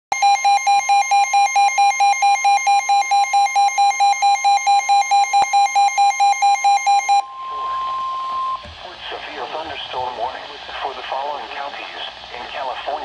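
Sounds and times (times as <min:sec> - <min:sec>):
rapid beeping alarm: 0:00.1 - 0:08.7
steady high tone: 0:05.7 - 0:08.9.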